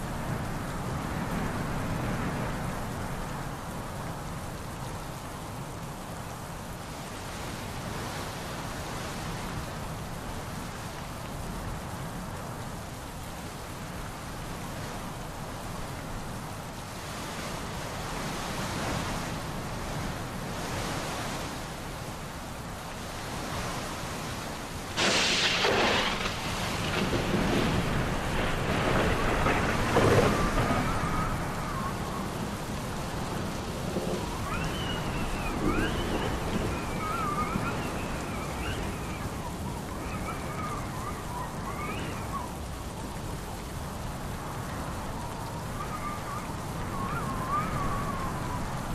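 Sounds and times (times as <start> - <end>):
heavy rain hissing: 0.0 - 48.9
thunderclap rumbling: 24.9 - 48.9.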